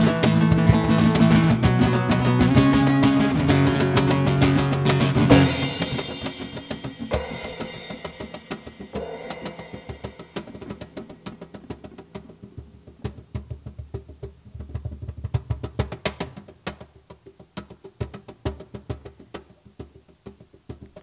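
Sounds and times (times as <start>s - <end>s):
hand drums sharp strikes: 0.0s - 21.0s
deep drum thumps: 3.4s - 14.1s.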